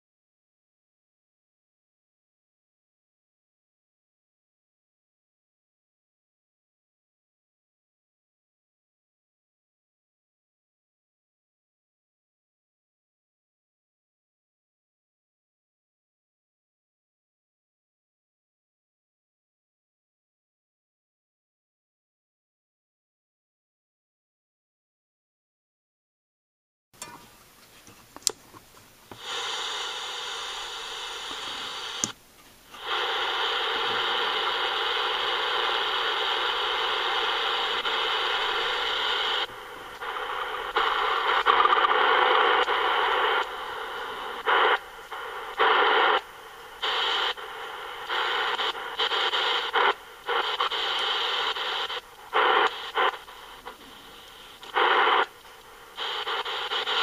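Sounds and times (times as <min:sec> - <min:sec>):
radio static hiss: 0:27.0 - 0:57.0.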